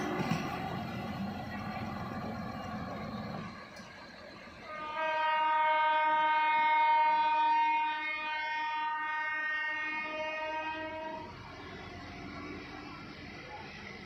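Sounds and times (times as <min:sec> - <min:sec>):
air horn long blast: 0:04.6 - 0:11.4.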